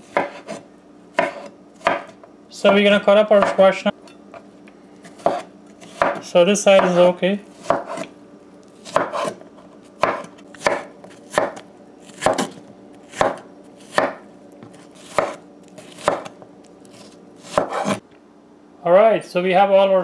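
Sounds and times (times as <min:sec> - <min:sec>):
knife chopping on wooden board: 0:00.0 - 0:00.6, 0:01.2 - 0:03.6, 0:05.0 - 0:08.1, 0:08.8 - 0:09.4, 0:10.0 - 0:18.0.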